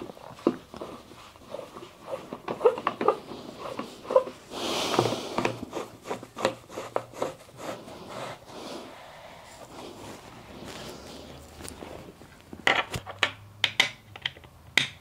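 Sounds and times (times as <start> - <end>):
rustling scrape: 0.0 - 13.0
knocks and clicks of assembly: 12.6 - 15.0.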